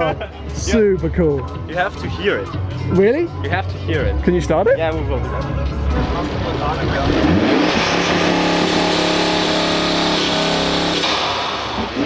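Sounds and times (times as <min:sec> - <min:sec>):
turbocharged engine running: 0:05.9 - 0:12.0.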